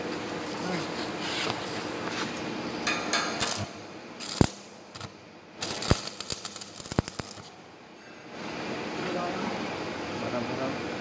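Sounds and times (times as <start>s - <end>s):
welding arc crackling: 3.4s - 7.6s.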